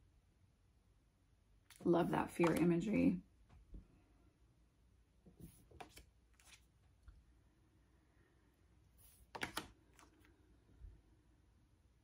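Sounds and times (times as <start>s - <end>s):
cards sliding and tapping: 5.3s - 6.7s, 9.0s - 10.2s.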